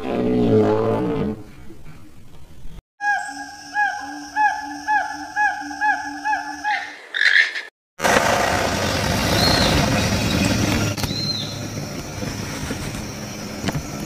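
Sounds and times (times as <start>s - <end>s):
motor-like hum: 8.0s - 14.0s.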